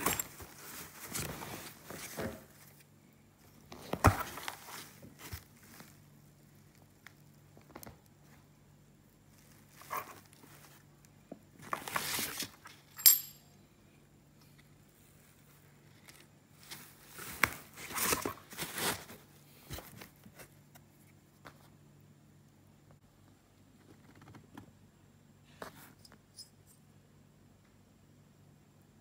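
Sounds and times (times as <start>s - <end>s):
cardboard and plastic rustling: 0.0s - 8.5s, 9.2s - 10.9s, 11.5s - 12.8s, 15.2s - 20.9s
sharp metallic clink: 12.9s - 13.6s.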